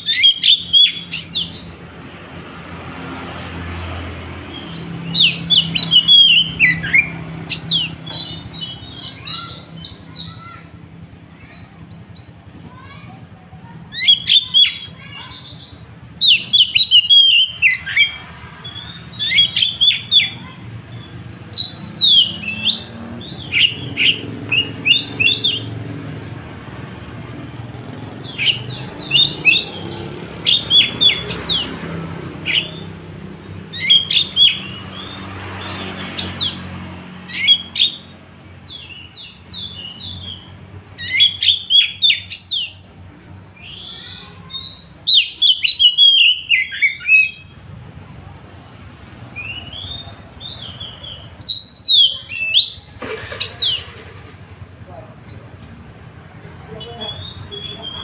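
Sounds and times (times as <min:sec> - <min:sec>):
bird singing whistled notes: 0:00.0 - 0:01.7, 0:04.5 - 0:10.5, 0:14.0 - 0:25.8, 0:28.2 - 0:31.8, 0:32.4 - 0:32.9, 0:33.7 - 0:35.6, 0:37.3 - 0:43.9, 0:44.5 - 0:47.6, 0:48.7 - 0:53.9, 0:56.7 - 0:58.0.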